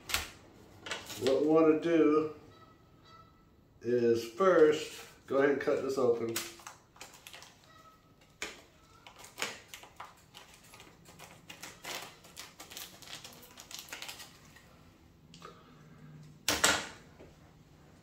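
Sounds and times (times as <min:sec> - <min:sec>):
plastic bag crinkling: 0:06.6 - 0:14.8.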